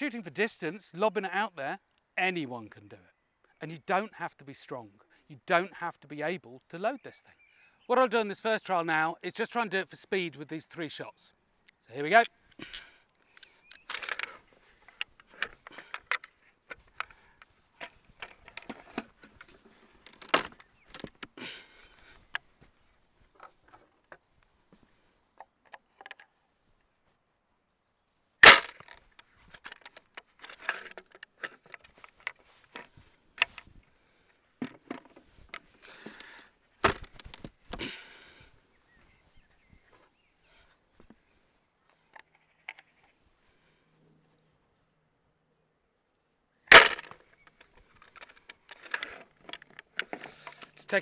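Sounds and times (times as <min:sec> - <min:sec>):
wooden crossbow mechanism clacking: 0:13.1 - 0:21.4, 0:25.4 - 0:26.4, 0:28.4 - 0:33.7, 0:46.7 - 0:51.0.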